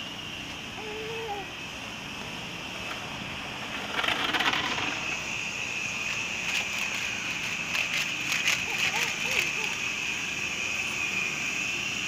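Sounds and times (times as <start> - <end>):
toy vacuum motor whining: 6.1 - 10.2.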